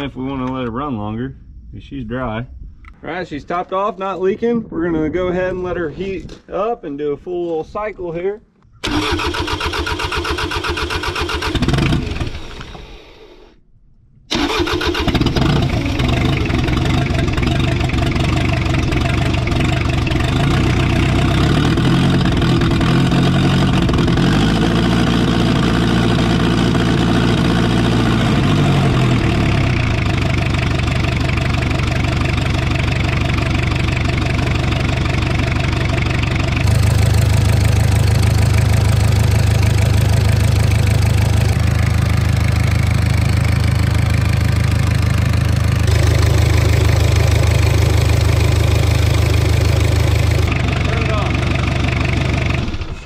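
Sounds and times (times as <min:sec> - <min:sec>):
diesel engine idling: 0:14.3 - 0:53.0.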